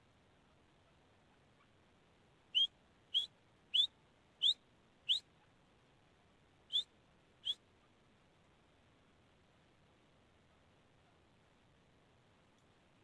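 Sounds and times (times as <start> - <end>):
francolin whistled calls: 2.5 - 5.3, 6.7 - 7.6.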